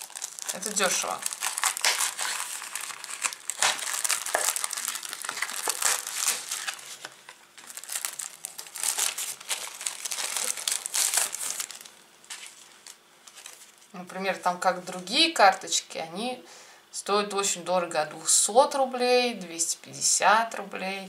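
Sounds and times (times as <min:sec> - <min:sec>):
plastic wrapper crinkling: 0:00.0 - 0:13.9.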